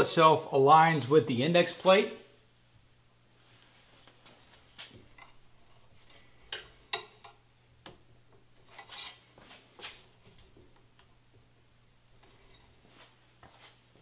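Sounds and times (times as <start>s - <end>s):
metal scrape: 8.6s - 10.0s.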